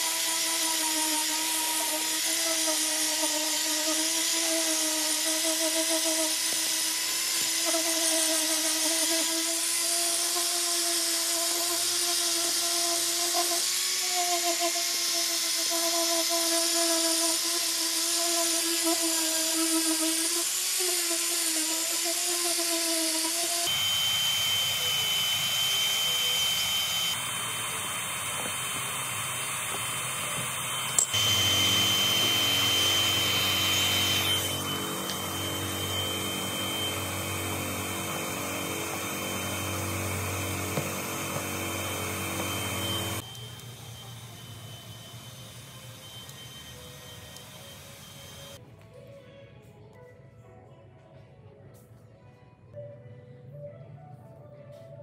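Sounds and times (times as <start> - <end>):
power tool high thin whine: 0.0 - 48.6
angle grinder grinding plastic: 18.2 - 43.2.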